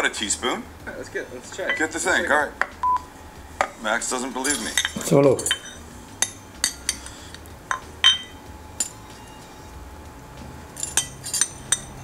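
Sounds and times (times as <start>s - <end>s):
metal spoon clinking on ceramic dish: 4.5s - 7.1s, 7.7s - 9.0s, 10.8s - 12.0s.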